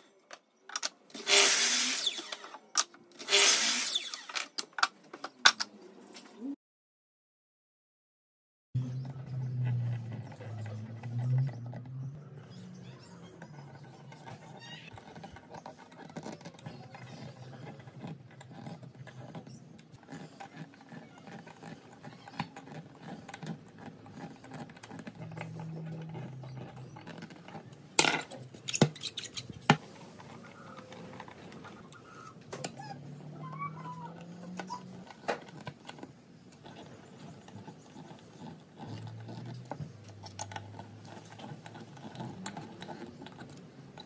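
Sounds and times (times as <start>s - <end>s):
screws biting into wood: 1.2s - 2.5s, 3.2s - 4.4s.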